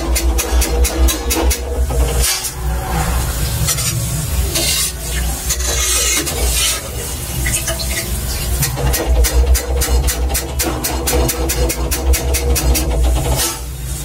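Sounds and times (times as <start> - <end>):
batter sizzling in oil: 0.0 - 14.0
low hum: 1.6 - 5.6
metal spoon scraping pan: 3.4 - 8.1.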